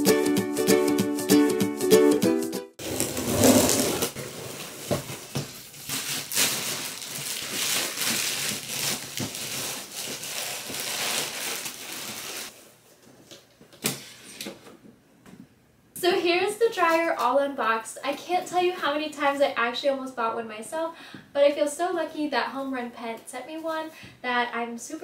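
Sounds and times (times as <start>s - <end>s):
packaging rustling and crinkling: 2.8s - 12.6s.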